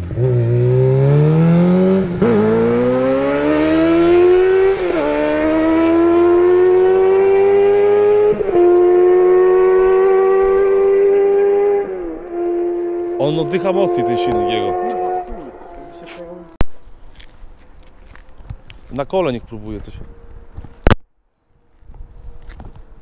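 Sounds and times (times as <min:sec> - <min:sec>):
motorcycle engine accelerating: 0:00.0 - 0:16.6.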